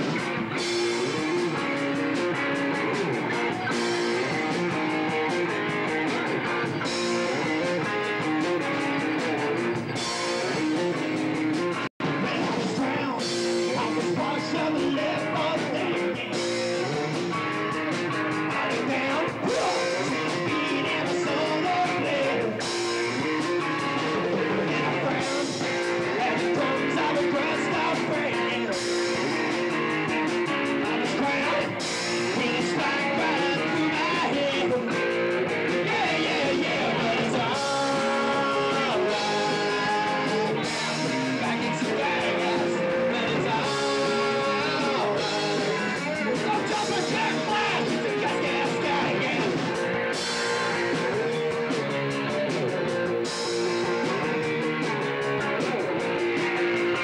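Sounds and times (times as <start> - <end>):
bass guitar: 0.0 - 57.0
electric guitar: 0.0 - 57.0
person singing into microphone: 12.1 - 17.0, 18.4 - 22.6, 23.5 - 49.8.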